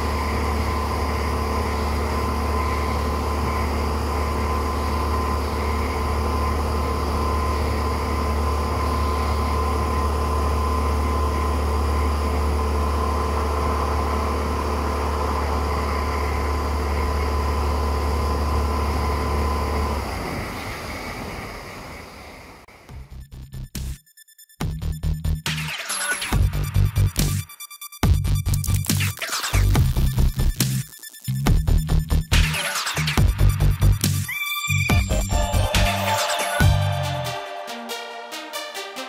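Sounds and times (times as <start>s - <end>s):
outboard motor running: 0.0s - 20.6s.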